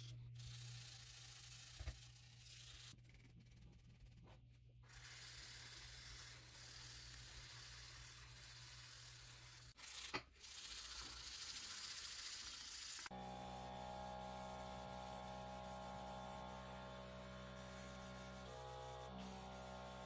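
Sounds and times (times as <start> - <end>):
sandpaper rubbing on metal: 4.9 - 20.0.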